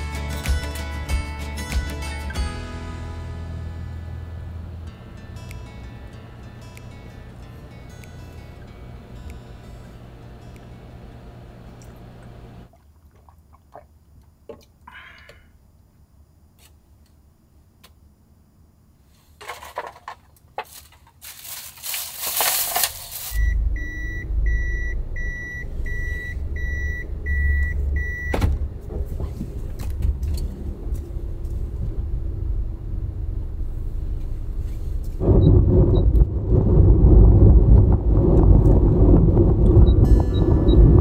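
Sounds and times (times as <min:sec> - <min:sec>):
dashboard warning chime beeps: 0:23.4 - 0:28.4, 0:39.9 - 0:41.0
van engine starting and idling: 0:23.4 - 0:41.0.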